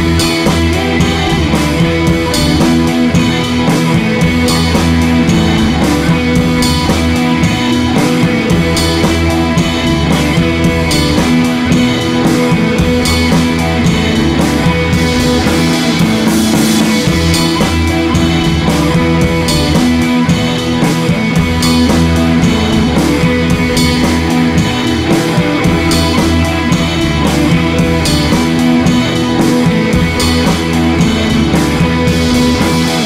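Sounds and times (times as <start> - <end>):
rock music with guitar and drums: 0.0 - 33.0.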